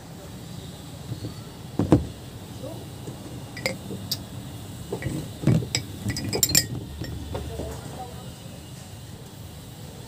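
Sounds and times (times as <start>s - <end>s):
metal parts clinking on workbench: 3.6s - 4.2s, 5.0s - 7.5s.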